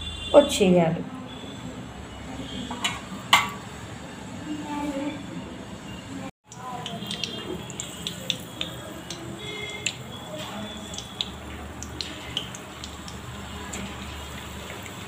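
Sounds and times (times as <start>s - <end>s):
hot oil sizzling: 6.4s - 15.0s
pops and crackles of frying: 6.4s - 15.0s.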